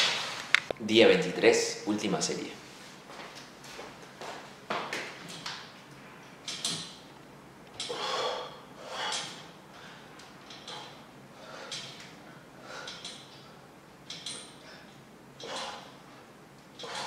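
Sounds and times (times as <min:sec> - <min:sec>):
pull-up bar clicking and knocking: 0:06.4 - 0:07.1, 0:09.1 - 0:09.5, 0:11.7 - 0:12.2, 0:12.8 - 0:14.6, 0:16.8 - 0:17.0.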